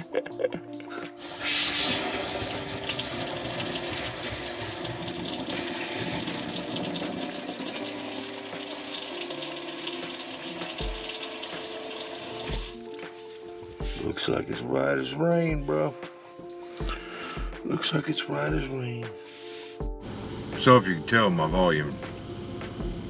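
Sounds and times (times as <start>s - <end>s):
sink faucet running: 1.2s - 13.8s.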